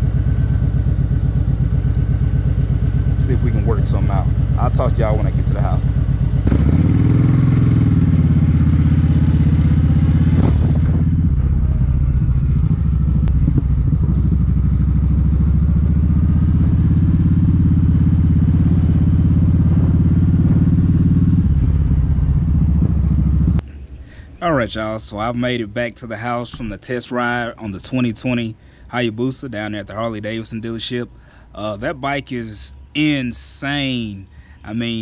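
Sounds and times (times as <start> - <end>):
motorcycle engine running: 0.0 - 23.6.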